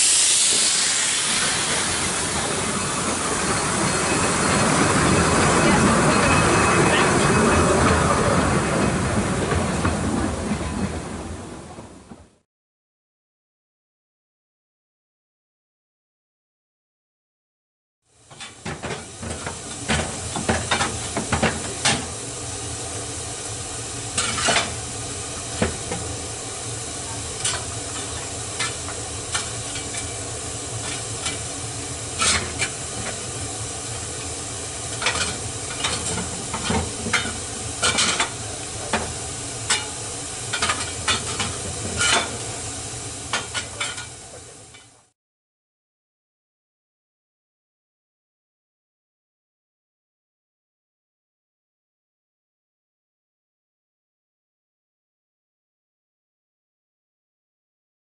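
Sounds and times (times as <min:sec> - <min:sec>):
steam hissing: 0:00.0 - 0:09.8, 0:18.4 - 0:45.0.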